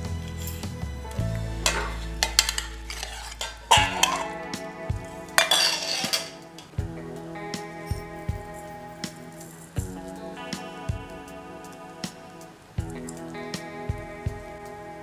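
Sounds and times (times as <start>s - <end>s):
soft background music: 0.0s - 15.0s
bowls clattering together: 1.6s - 4.4s, 5.4s - 6.7s.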